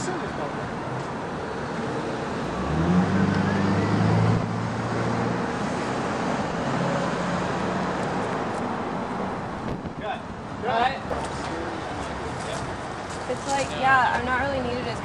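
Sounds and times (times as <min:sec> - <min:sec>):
vehicle engine hum: 0:00.0 - 0:10.5
street noise: 0:00.0 - 0:15.0.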